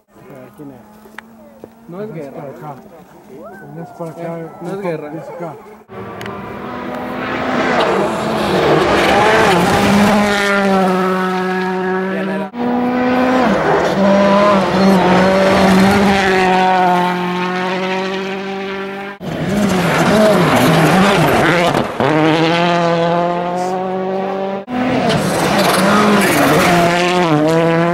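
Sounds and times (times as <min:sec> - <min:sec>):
rally car engines at high revs: 0:05.8 - 0:27.9.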